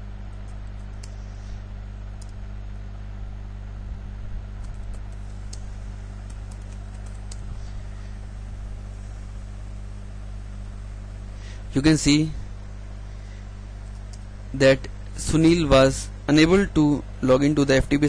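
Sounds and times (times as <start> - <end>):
low electrical hum: 0.0 - 18.0
computer keyboard typing: 4.6 - 5.2, 6.2 - 7.4.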